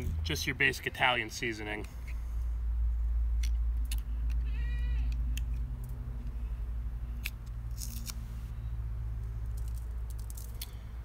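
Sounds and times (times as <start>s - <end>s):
goat bleating: 4.4s - 5.2s.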